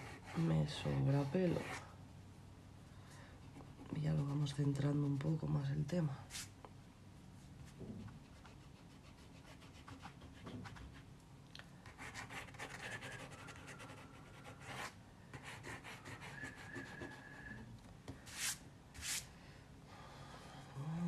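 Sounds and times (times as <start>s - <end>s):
pencil scratching on paper: 0.0s - 1.8s, 8.3s - 11.0s, 11.9s - 17.2s.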